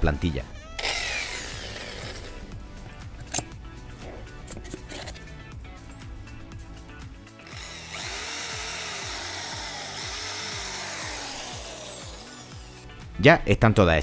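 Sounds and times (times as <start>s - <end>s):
background music: 0.0s - 14.0s
electric drill running: 0.8s - 2.5s, 7.4s - 13.0s.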